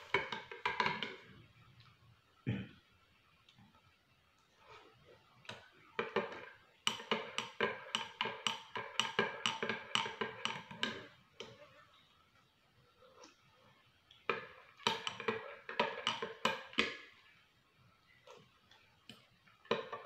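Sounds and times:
spoon taps: 0:05.5 - 0:11.1.

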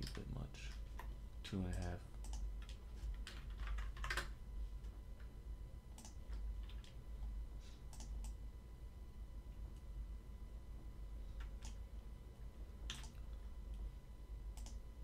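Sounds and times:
steady low hum: 0:00.0 - 0:15.0
computer keyboard typing: 0:01.7 - 0:04.3, 0:06.0 - 0:07.0, 0:07.9 - 0:08.4, 0:12.9 - 0:13.3, 0:14.6 - 0:14.8
mouse clicks: 0:06.0 - 0:06.2, 0:07.9 - 0:08.4, 0:14.6 - 0:14.8.

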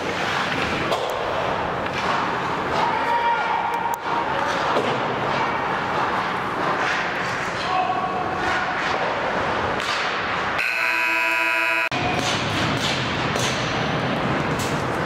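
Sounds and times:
arena background noise: 0:00.0 - 0:15.0
ice rink buzzer: 0:10.6 - 0:11.9.

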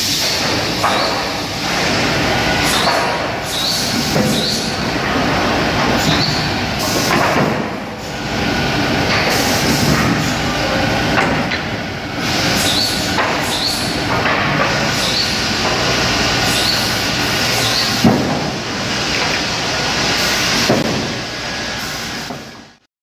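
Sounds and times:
machinery and conveyor noise: 0:00.0 - 0:22.8
saw cutting boards: 0:00.8 - 0:07.7, 0:12.3 - 0:18.3.

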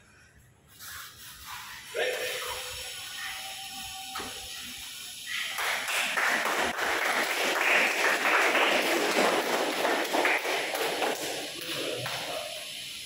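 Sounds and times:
small group clapping: 0:04.1 - 0:13.0.

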